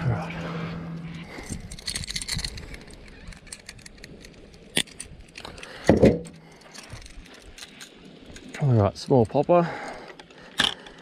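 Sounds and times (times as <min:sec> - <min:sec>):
fishing tackle clicking and clinking: 0:00.9 - 0:11.0.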